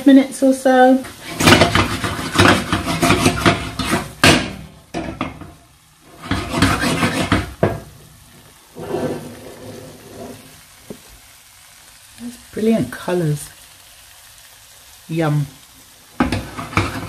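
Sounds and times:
light sizzle: 0.0s - 17.0s
spoon scraping a pan: 1.0s - 10.7s, 16.2s - 17.0s.

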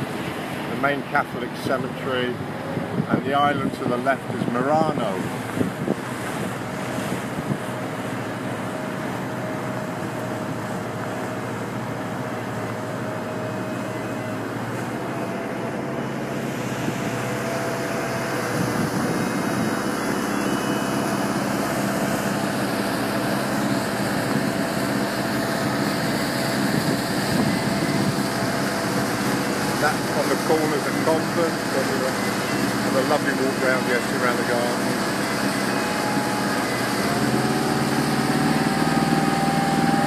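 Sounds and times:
boat engine droning: 0.0s - 40.0s
water rushing: 0.0s - 40.0s.

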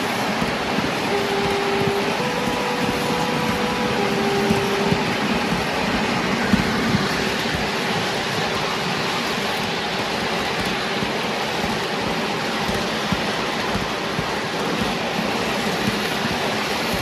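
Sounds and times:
faint stepping tone: 0.0s - 8.1s
miniature train on track: 0.0s - 17.0s
wind rush: 0.0s - 17.0s.

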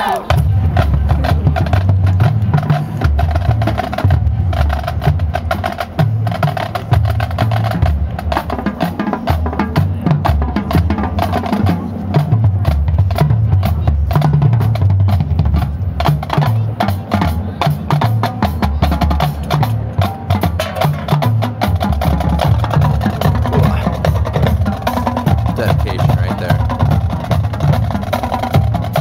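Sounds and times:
bass drums: 0.0s - 29.0s.

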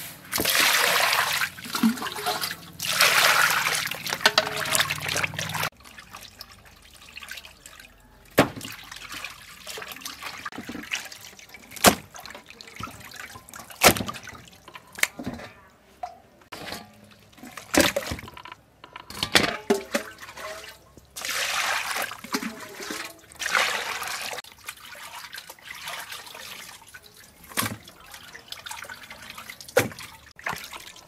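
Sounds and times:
water sloshing from hand washing: 0.2s - 15.3s, 16.5s - 18.3s, 19.7s - 31.0s
water pouring into steel bowl: 0.4s - 8.0s.

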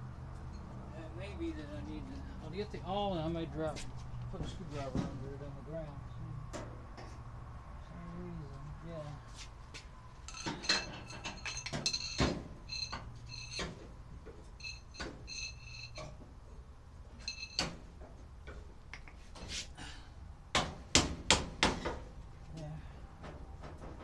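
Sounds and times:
tools clinking on sheet metal: 10.2s - 13.9s, 14.5s - 16.2s, 17.2s - 17.8s
ringing metallic jingle: 10.3s - 13.7s, 14.6s - 16.1s, 17.2s - 17.7s
sharp knocks on metal: 10.4s - 13.9s, 20.5s - 22.1s.

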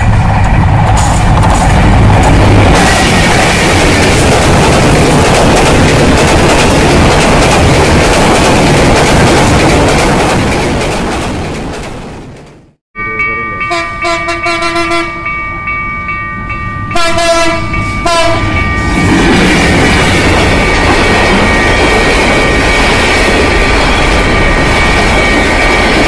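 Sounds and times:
train wheels on rails: 0.0s - 12.8s, 16.8s - 26.0s
thin high tone: 13.0s - 14.3s
train horn blasts: 13.6s - 15.3s, 16.9s - 18.6s.

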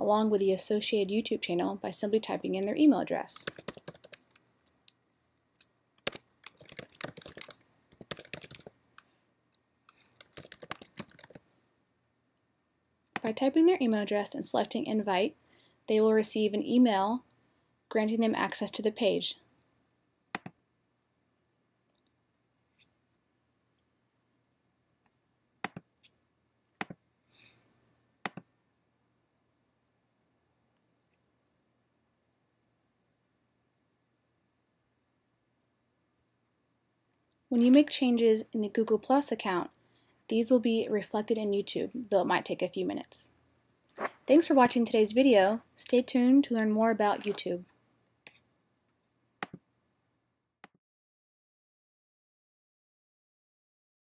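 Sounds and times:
typing on a computer keyboard: 3.4s - 4.4s, 6.0s - 8.7s, 9.9s - 11.4s.

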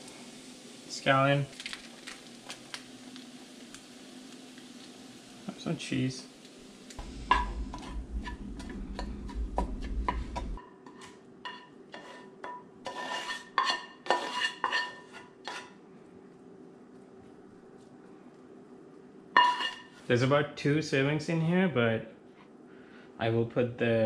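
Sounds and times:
low hum: 6.5s - 10.6s
metal spatula scraping pan: 7.0s - 15.8s, 19.4s - 20.1s.

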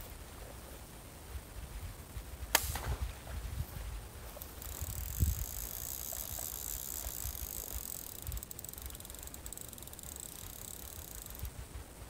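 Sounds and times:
microphone hiss and rumble: 0.0s - 12.0s
fishing reel ticking: 4.3s - 11.7s.

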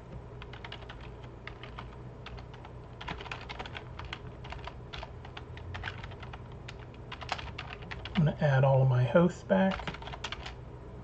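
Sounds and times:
low hum: 0.0s - 11.0s
typing on computer keyboard: 0.4s - 8.2s, 9.7s - 10.6s.

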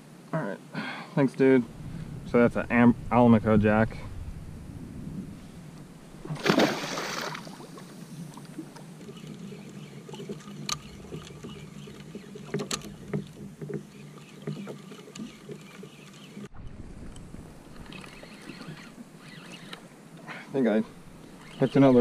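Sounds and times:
water lapping around hull: 4.8s - 22.0s
fish splashing into water: 6.3s - 7.9s.

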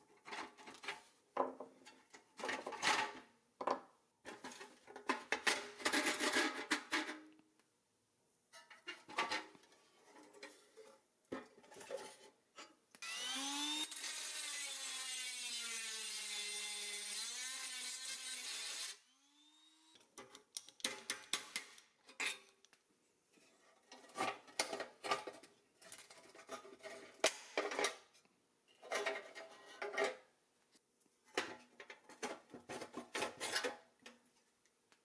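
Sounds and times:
power drill boring metal: 13.0s - 20.0s.

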